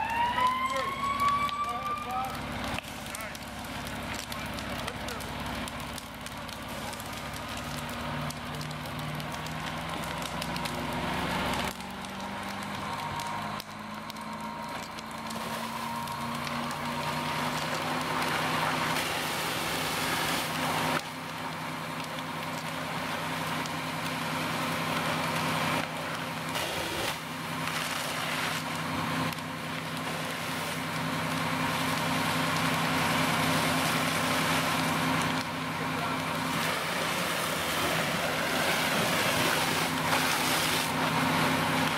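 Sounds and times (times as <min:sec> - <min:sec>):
fire crackling: 0:00.0 - 0:41.9
fire engine pump running: 0:00.0 - 0:41.9
rushing water stream hiss: 0:36.4 - 0:41.8.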